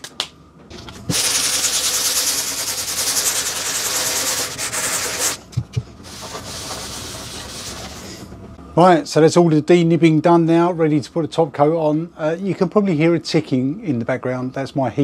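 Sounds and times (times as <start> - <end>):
scratchy sanding by hand: 1.1 - 5.4.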